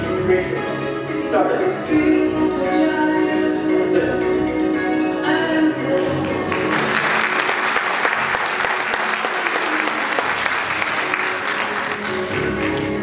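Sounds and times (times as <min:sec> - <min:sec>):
background music: 0:00.0 - 0:13.0
audience applause: 0:06.3 - 0:13.0.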